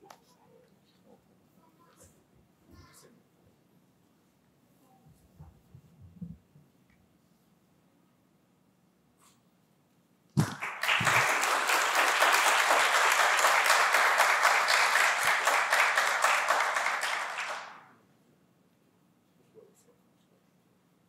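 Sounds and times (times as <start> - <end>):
audience applauding: 10.4 - 17.9.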